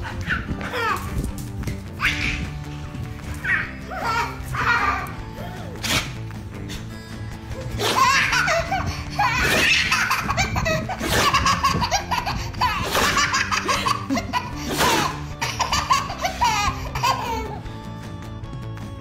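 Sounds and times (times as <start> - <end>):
baby laughing: 0.0 - 1.4, 2.0 - 2.7, 3.3 - 6.2, 7.5 - 17.7
background music: 0.0 - 19.0.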